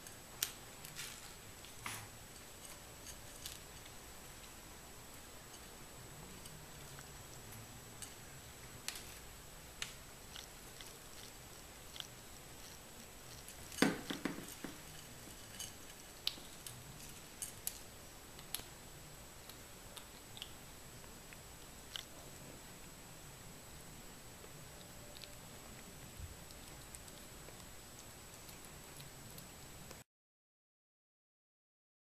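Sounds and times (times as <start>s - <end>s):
kittens crunching dry kibble: 0.0s - 23.0s, 24.3s - 30.0s
kibble clattering in bowl: 13.4s - 16.0s.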